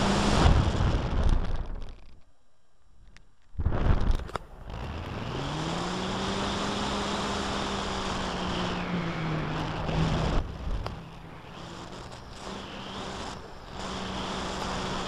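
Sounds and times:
wind rushing over microphone: 0:00.0 - 0:01.9, 0:03.6 - 0:15.0
model plane propeller droning: 0:04.3 - 0:15.0.

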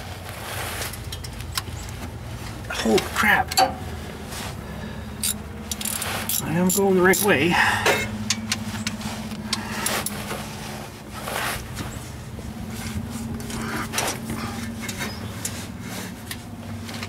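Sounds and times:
steady low hum: 0:00.8 - 0:17.0
socket ratchet clicking: 0:05.2 - 0:07.4.

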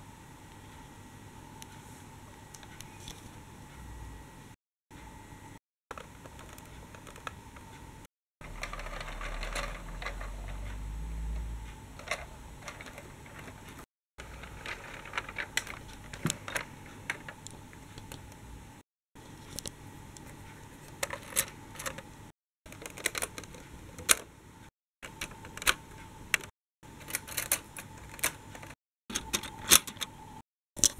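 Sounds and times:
toy tram wheels clicking and rattling: 0:08.4 - 0:10.8, 0:12.0 - 0:17.4
low rumble: 0:08.5 - 0:12.6.

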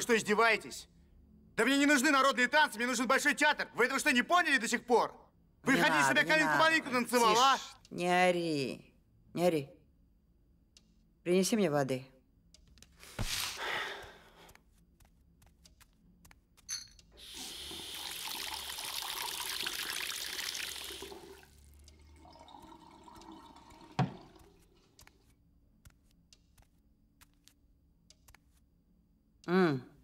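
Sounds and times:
water running from a tap: 0:17.2 - 0:24.7.

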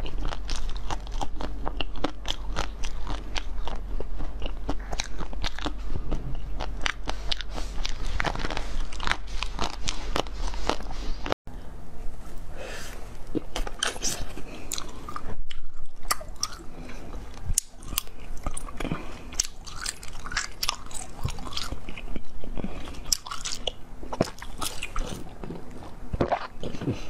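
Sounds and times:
crunching frozen jelly: 0:00.0 - 0:11.3, 0:13.2 - 0:27.0.

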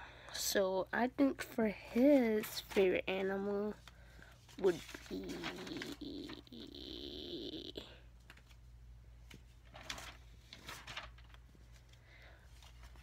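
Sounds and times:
low background hum: 0:00.0 - 0:13.0
girl humming: 0:04.6 - 0:08.1.

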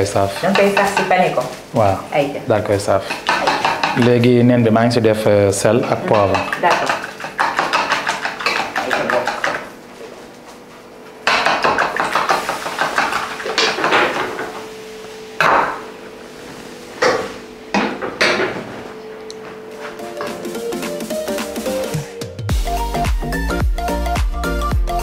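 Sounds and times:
utensil clinking against bowl: 0:03.1 - 0:04.2, 0:05.8 - 0:09.7.

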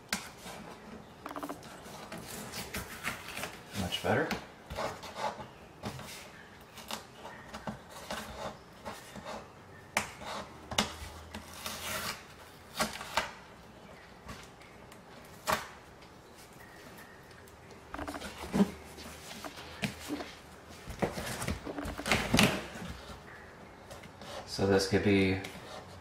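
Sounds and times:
tape peeling off cardboard: 0:10.0 - 0:13.4.

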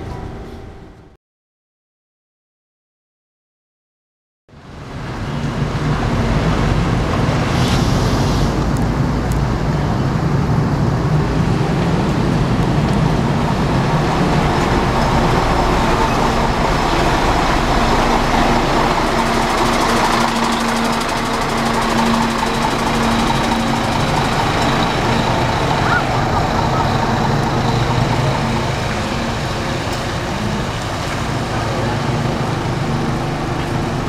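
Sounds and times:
bus diesel engine idling: 0:08.5 - 0:34.0.

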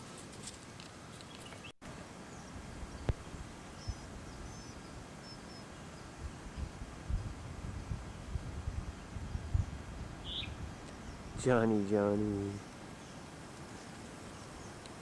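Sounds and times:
steady hiss: 0:00.0 - 0:15.0
faint high bird chirps: 0:10.2 - 0:11.4.

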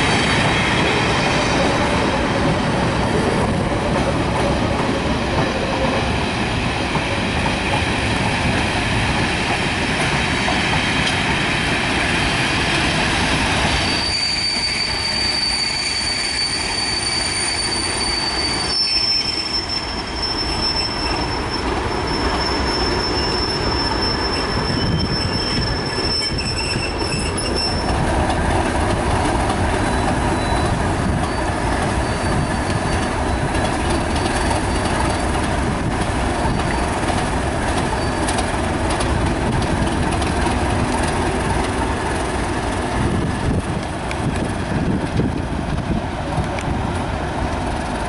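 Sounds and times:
diesel locomotives rumbling: 0:00.0 - 0:48.0
high wheel squeal: 0:13.7 - 0:28.0, 0:29.8 - 0:35.5, 0:36.2 - 0:37.1, 0:37.8 - 0:38.5.

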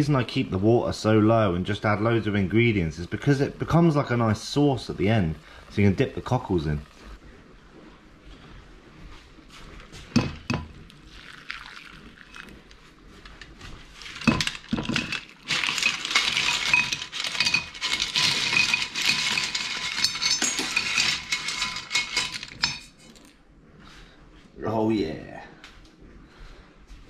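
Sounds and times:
shells clattering in bowl: 0:11.2 - 0:23.4.

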